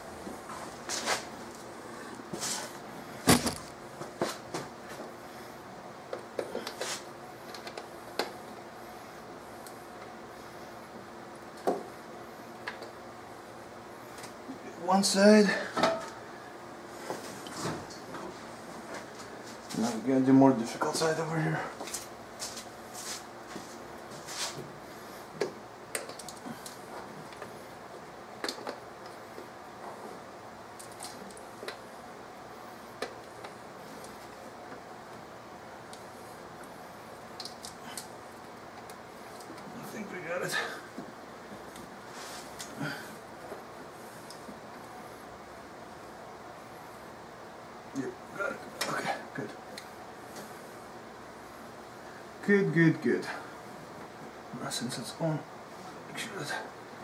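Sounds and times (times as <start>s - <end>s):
sharp clicks and light knocks: 25.4s - 27.5s.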